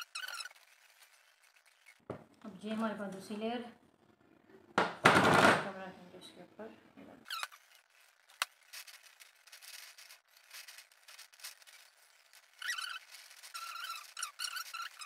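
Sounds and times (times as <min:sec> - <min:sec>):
short high squeaks: 0:00.0 - 0:02.1, 0:07.2 - 0:08.4, 0:11.3 - 0:15.0.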